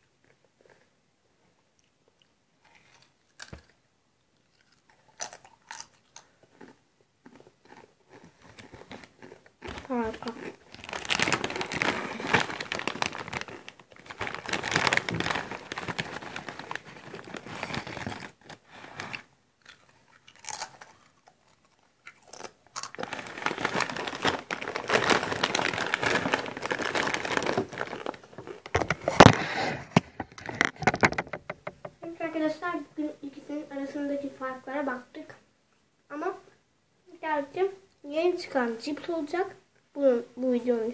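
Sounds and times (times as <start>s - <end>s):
chewing crunchy crisps: 1.8s - 29.5s.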